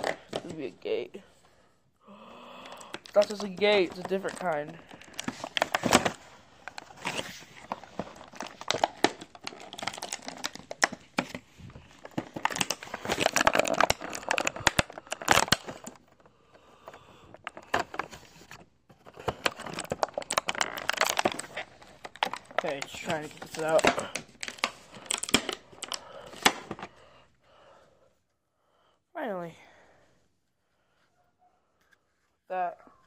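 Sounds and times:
packaging crinkling and tearing: 2.8 - 16.2, 17.4 - 26.9.

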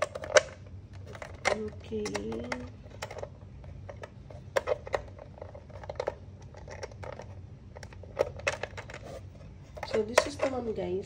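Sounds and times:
plastic parts clicking and knocking: 0.0 - 10.8.

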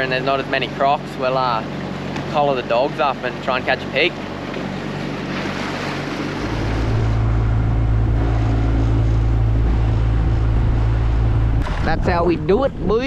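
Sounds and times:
outboard motor droning: 0.0 - 13.0
water rushing along hull: 0.0 - 13.0.

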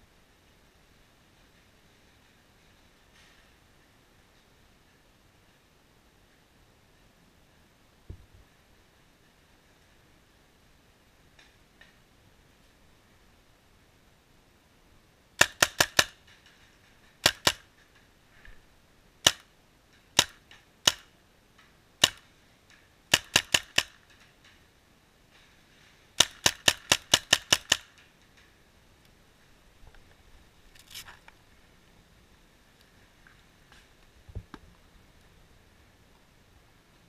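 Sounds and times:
paintball marker firing: 15.4 - 16.2, 17.2 - 17.7, 19.2 - 19.5, 20.2 - 21.1, 22.0 - 22.3, 23.1 - 24.0, 26.2 - 27.9.

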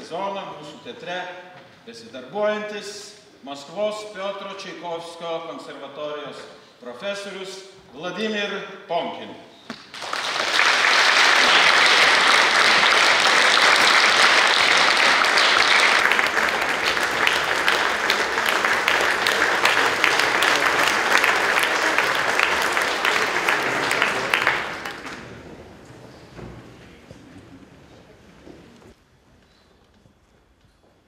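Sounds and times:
audience applauding: 9.8 - 25.6.

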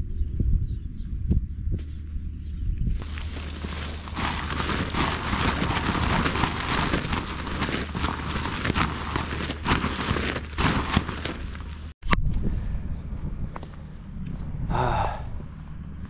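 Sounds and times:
tent fabric flapping and snapping: 3.0 - 12.0.

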